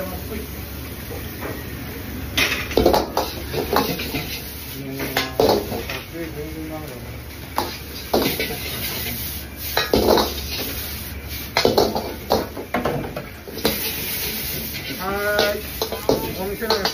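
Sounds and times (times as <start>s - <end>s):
metal ladle scraping a wok: 3.2s - 6.0s, 7.6s - 12.4s, 13.5s - 16.9s.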